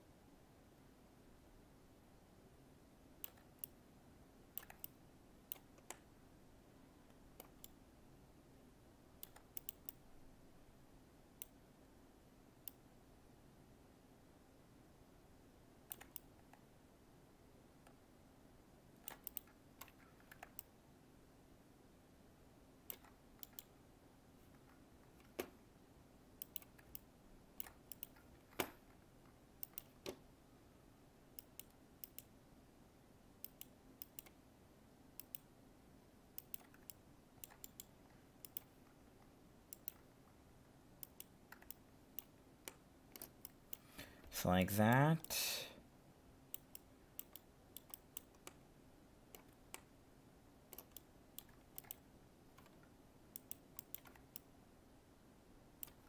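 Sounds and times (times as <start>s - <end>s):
faint computer mouse clicks: 3.2s - 3.8s, 4.5s - 6.1s, 7.0s - 7.8s, 9.2s - 10.0s, 12.6s - 12.8s, 15.9s - 16.6s, 19.0s - 20.7s, 22.9s - 23.7s, 26.4s - 28.8s, 29.6s - 30.2s, 31.4s - 32.3s, 33.4s - 34.4s, 35.2s - 35.5s, 36.4s - 38.8s, 39.7s - 40.1s, 41.0s - 44.0s, 46.5s - 48.6s, 50.7s - 54.5s, 55.8s - 56.0s.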